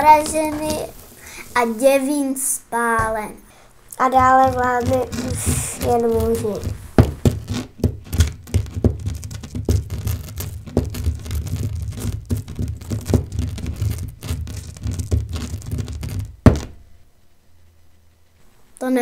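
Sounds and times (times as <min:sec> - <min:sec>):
rustling: 0:03.9 - 0:16.9.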